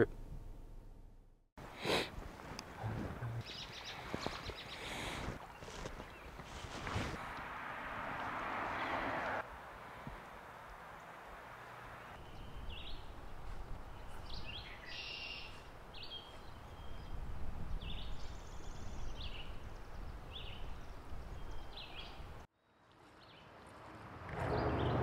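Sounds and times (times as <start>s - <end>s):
songbirds chirping: 2.5s - 7.4s, 10.6s - 22.5s
stream rushing: 6.4s - 12.2s.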